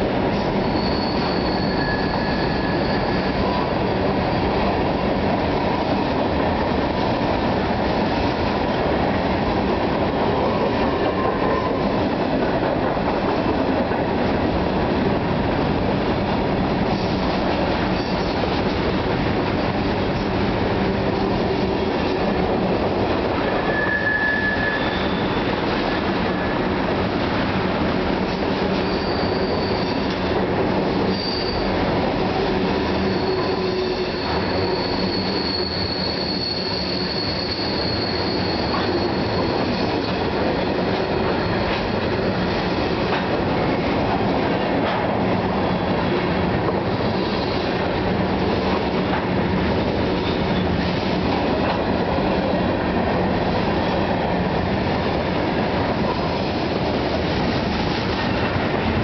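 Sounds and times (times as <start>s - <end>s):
train wheels rumbling on rail: 0.0s - 59.0s
high wheel squeal: 0.5s - 4.6s, 23.4s - 25.6s, 28.8s - 30.2s, 31.0s - 31.8s, 32.8s - 42.4s.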